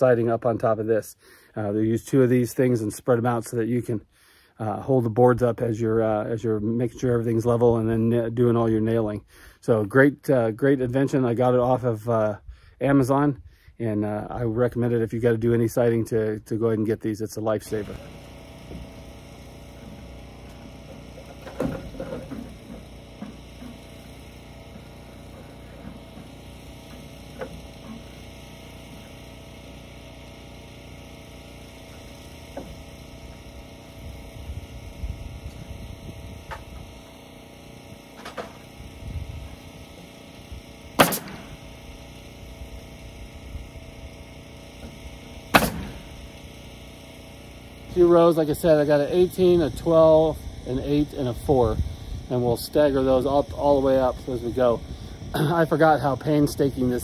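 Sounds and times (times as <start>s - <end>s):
steady hum: 0.0s - 57.0s
nailing cracks: 41.0s - 41.6s, 45.5s - 46.1s.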